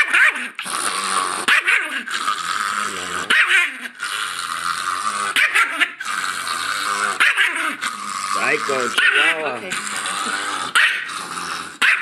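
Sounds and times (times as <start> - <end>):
small dog growling and snarling: 0.0 - 12.0
small dog barking: 11.8 - 12.0.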